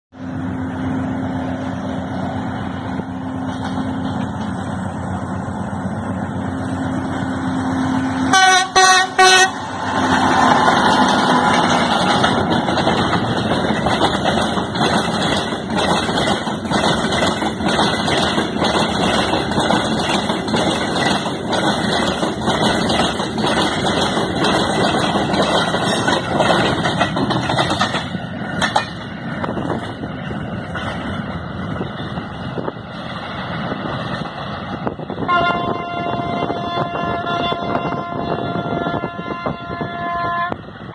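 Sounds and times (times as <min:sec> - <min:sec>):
diesel locomotive running: 0:00.1 - 0:40.9
train rolling clatter: 0:00.1 - 0:40.9
locomotive horn blasts: 0:08.2 - 0:09.7, 0:35.2 - 0:40.7.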